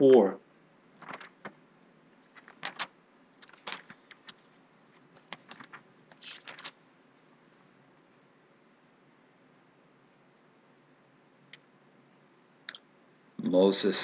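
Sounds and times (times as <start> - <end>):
handling clicks and rustles: 1.0 - 1.6.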